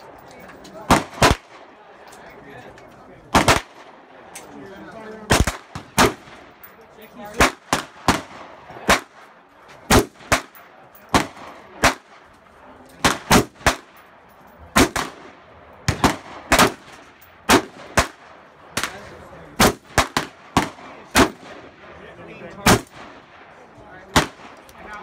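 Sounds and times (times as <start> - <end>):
rifle shots: 0.8 - 1.7, 3.3 - 4.0, 5.3 - 6.6, 7.3 - 12.3, 13.0 - 14.0, 14.7 - 21.8, 22.6 - 23.4, 24.1 - 24.6.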